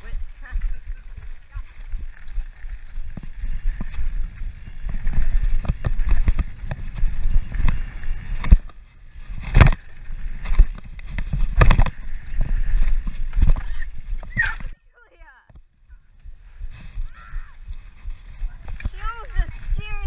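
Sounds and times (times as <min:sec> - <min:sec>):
bike clattering over bumps: 0:00.0 - 0:14.8.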